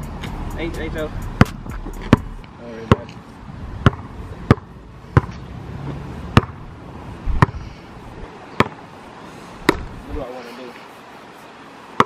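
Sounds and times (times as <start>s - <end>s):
basketball bouncing on asphalt: 1.2s - 3.2s, 3.8s - 7.7s, 8.5s - 8.9s, 9.6s - 10.0s.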